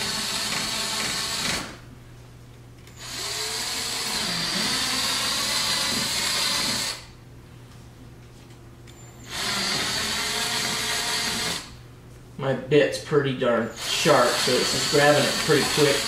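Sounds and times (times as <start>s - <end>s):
power drill boring through plastic: 0.0s - 1.7s, 3.0s - 7.1s, 9.3s - 11.7s, 13.8s - 16.0s.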